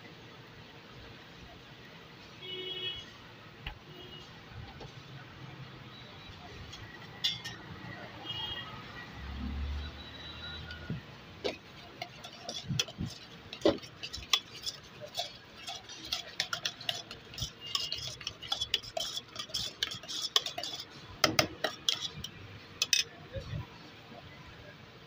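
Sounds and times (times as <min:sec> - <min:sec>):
spoon clinking and scraping in bowl: 0:07.2 - 0:07.7, 0:11.4 - 0:23.2.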